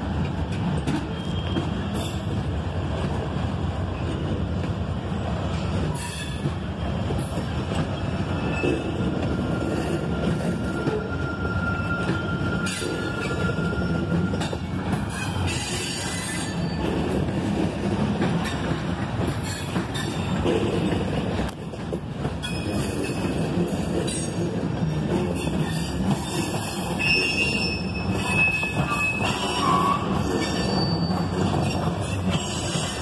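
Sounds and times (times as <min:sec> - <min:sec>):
train wheels rumbling on rail: 0:00.0 - 0:33.0
wheel squeal: 0:01.0 - 0:02.2, 0:08.0 - 0:17.0, 0:25.4 - 0:33.0.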